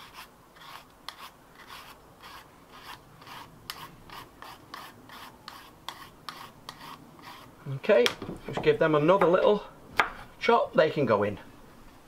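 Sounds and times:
peeler scraping a carrot: 0:00.0 - 0:07.5.

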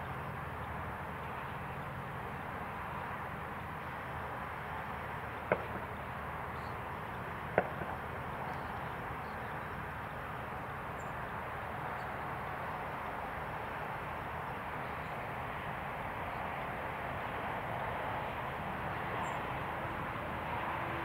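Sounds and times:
distant light aircraft engine: 0:00.0 - 0:21.0
outdoor noise: 0:00.0 - 0:21.0.

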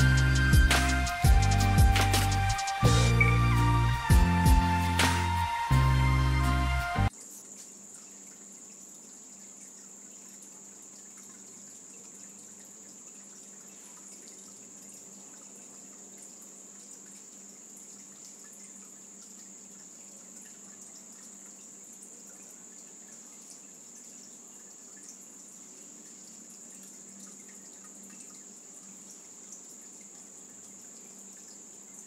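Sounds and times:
water drips and splashes: 0:00.0 - 0:03.2, 0:07.0 - 0:32.0
high-pitched steady tone: 0:00.0 - 0:07.1
shallow water trickling: 0:07.1 - 0:32.0.

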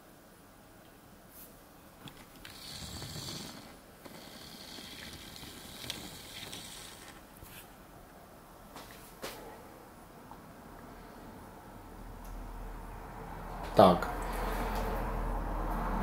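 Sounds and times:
thin steady whine: 0:00.0 - 0:16.0
camera zoom lens motor whirring: 0:02.1 - 0:07.3.

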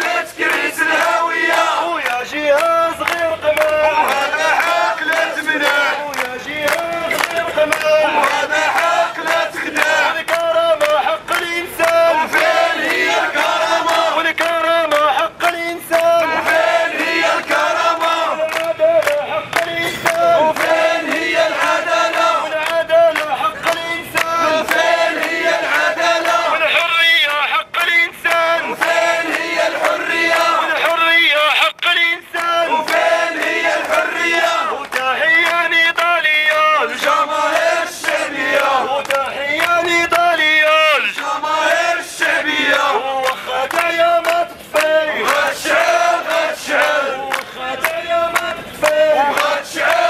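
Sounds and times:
crowd chanting: 0:00.0 - 0:50.0
man chanting through megaphone: 0:00.0 - 0:50.0
rhythmic hand clapping: 0:00.0 - 0:50.0
man shouting through megaphone: 0:26.5 - 0:28.7, 0:30.5 - 0:32.8.

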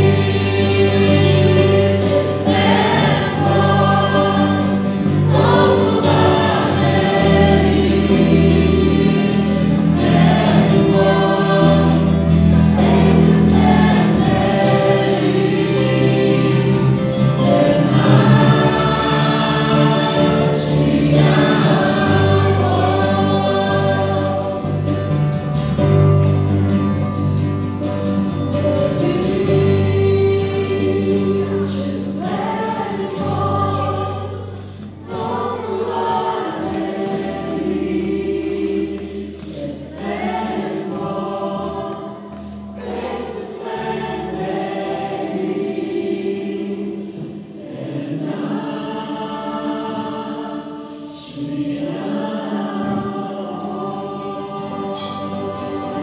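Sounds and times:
bass guitar: 0:00.0 - 0:32.4
acoustic guitar: 0:00.0 - 0:56.0
keyboard: 0:00.0 - 0:56.0
men and women singing together: 0:00.0 - 0:56.0.

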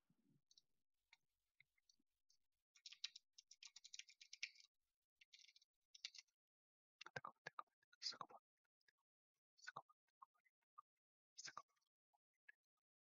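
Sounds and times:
faint rapid clicks: 0:02.8 - 0:06.4.

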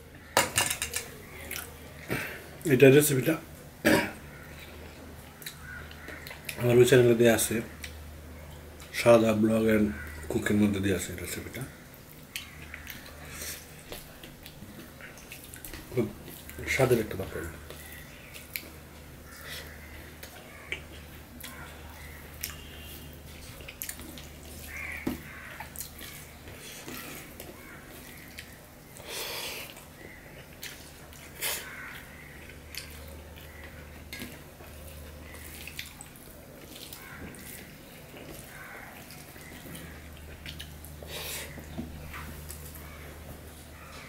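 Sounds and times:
chewing smacks: 0:17.6 - 0:42.9.

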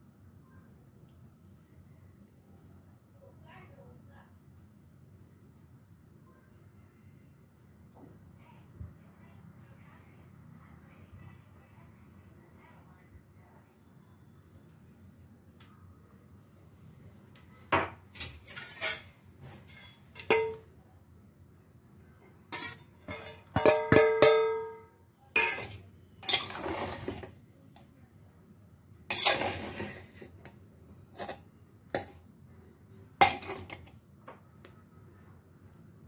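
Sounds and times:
spoon clinking against metal pot: 0:19.6 - 0:20.7, 0:22.5 - 0:27.2, 0:29.1 - 0:29.9, 0:33.2 - 0:33.9.

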